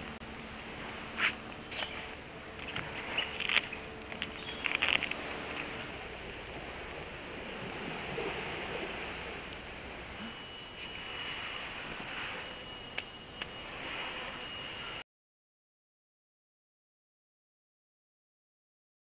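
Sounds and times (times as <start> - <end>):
steady background hiss: 0.0 - 15.0
rotten wood cracking and snapping: 2.5 - 7.8.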